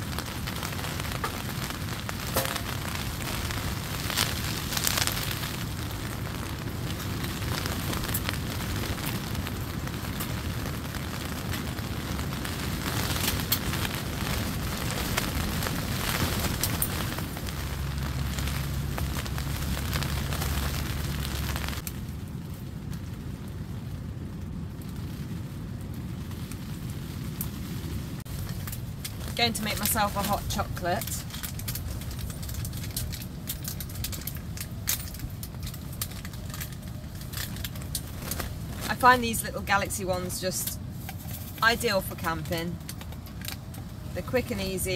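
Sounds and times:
foil sachet crinkling and tearing: 0:00.0 - 0:10.4, 0:28.3 - 0:39.0
rain on tent fabric: 0:00.0 - 0:44.9
wind: 0:00.0 - 0:44.9
wood fire crackling: 0:00.0 - 0:44.9.

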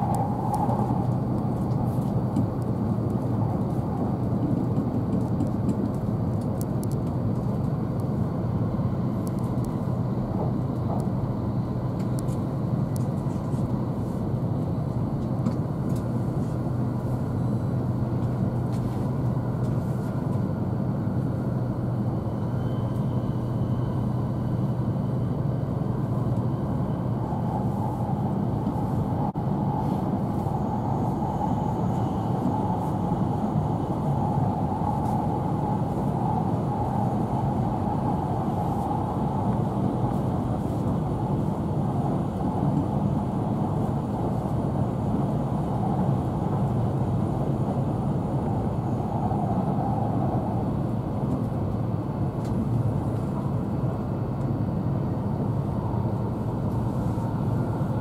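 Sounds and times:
train wheels rumbling: 0:00.0 - 0:07.9
faint high whine: 0:21.1 - 0:51.0.

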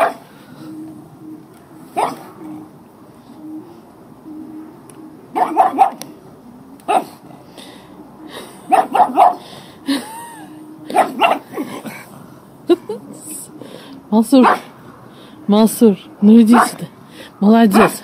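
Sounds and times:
dog barking: 0:00.0 - 0:00.2, 0:02.0 - 0:02.4, 0:05.3 - 0:06.0, 0:06.9 - 0:07.2, 0:08.7 - 0:09.4, 0:10.9 - 0:11.5, 0:14.4 - 0:14.7, 0:16.5 - 0:16.8, 0:17.7 - 0:18.0.

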